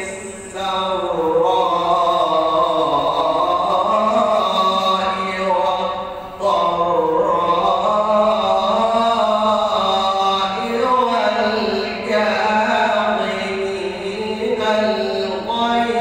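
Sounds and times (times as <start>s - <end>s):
man chanting melodically: 0.0s - 16.0s.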